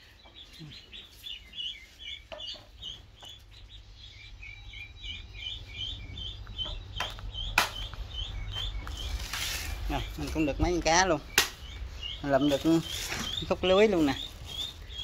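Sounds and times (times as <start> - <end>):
chicks peeping: 0.0 - 15.0
sharp knock: 7.0 - 7.9.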